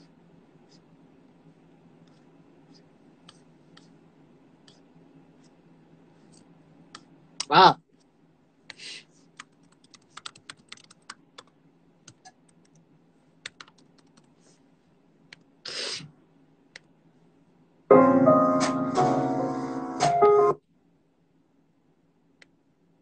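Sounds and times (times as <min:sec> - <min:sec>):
taps and clicks on computer keyboard: 0:13.4 - 0:14.3
short hisses: 0:15.7 - 0:16.1
loud music with keys: 0:17.9 - 0:20.6.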